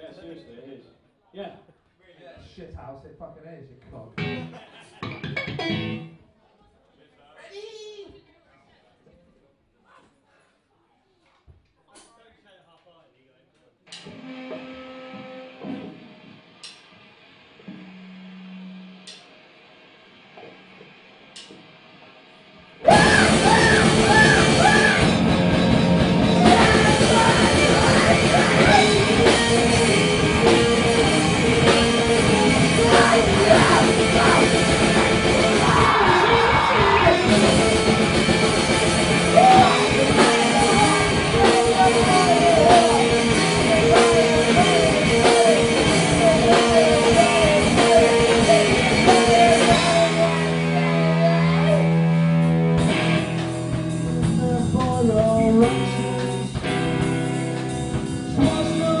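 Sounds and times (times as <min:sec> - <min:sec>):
drums: 0:03.8 - 0:06.4, 0:13.8 - 0:59.0
electric guitar riff: 0:04.2 - 0:06.2, 0:14.0 - 0:19.3, 0:22.8 - 0:59.0
person singing: 0:22.8 - 0:25.2, 0:26.4 - 0:38.0, 0:38.6 - 0:52.0, 0:53.8 - 0:57.0, 0:58.2 - 0:59.0.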